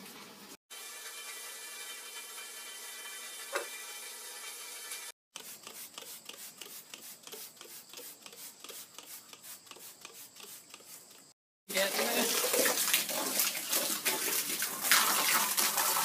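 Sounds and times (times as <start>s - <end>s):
kitchen faucet running: 0.7s - 5.2s
trigger spray bottle squirting: 5.4s - 11.0s.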